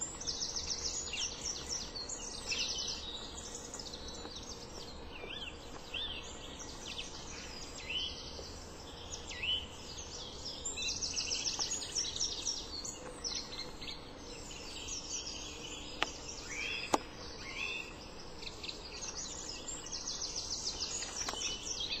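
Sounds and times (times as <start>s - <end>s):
background hiss: 0.0s - 22.0s
songbirds chirping and singing: 0.0s - 22.0s.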